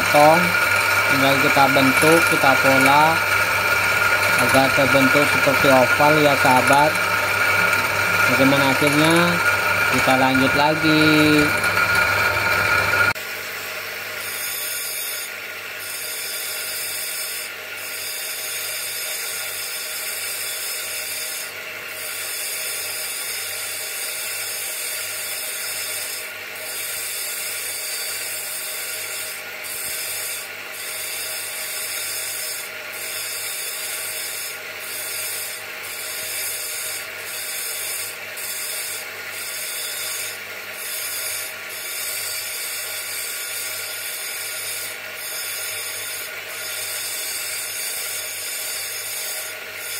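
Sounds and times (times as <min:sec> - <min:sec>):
stone grinding hiss: 0:00.0 - 0:13.2, 0:25.3 - 0:49.9
bench grinder motor running: 0:00.0 - 0:49.9.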